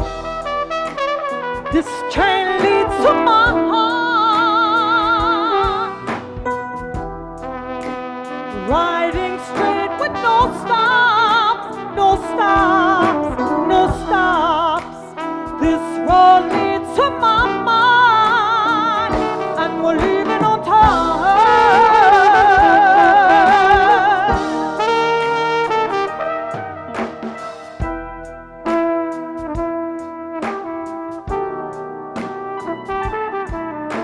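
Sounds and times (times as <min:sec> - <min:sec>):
drum kit: 0:00.0 - 0:34.0
electric guitar: 0:00.0 - 0:34.0
trumpet playing: 0:00.0 - 0:34.0
woman singing: 0:01.7 - 0:06.1, 0:08.6 - 0:24.9.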